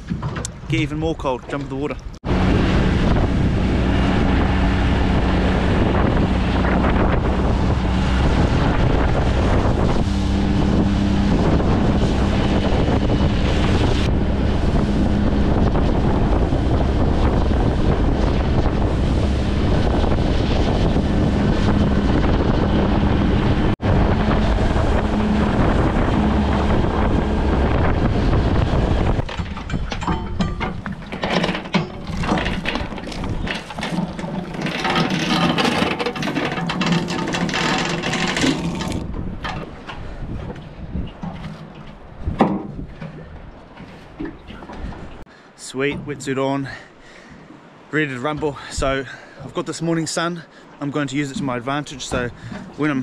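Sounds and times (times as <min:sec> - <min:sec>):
outboard motor running: 0:00.0 - 0:45.3
water rushing past hull: 0:00.0 - 0:53.0
wind buffeting microphone: 0:00.0 - 0:53.0
anchor chain clinking: 0:29.4 - 0:39.7.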